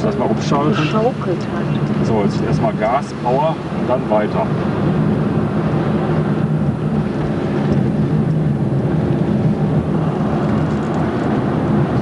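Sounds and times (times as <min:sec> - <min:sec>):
car engine drone: 0:00.0 - 0:12.0
tyre and road noise: 0:00.0 - 0:12.0.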